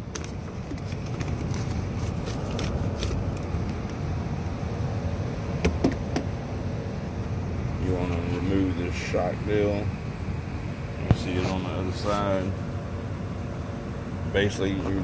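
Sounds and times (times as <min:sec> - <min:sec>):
steady low rumble: 0:00.0 - 0:15.0
papers crinkling and rustling: 0:00.1 - 0:03.8.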